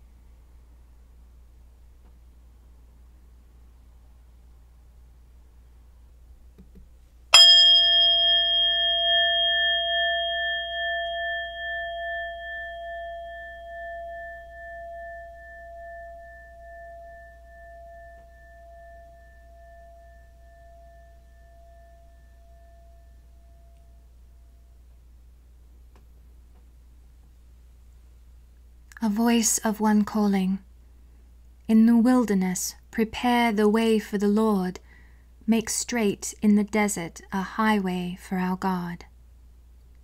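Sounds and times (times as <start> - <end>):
singing bowl ringing: 7.3 - 24.9.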